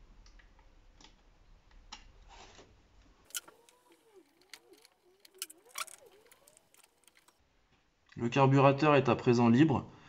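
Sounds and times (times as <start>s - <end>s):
screwdriver rubbing on metal: 3.3s - 7.3s.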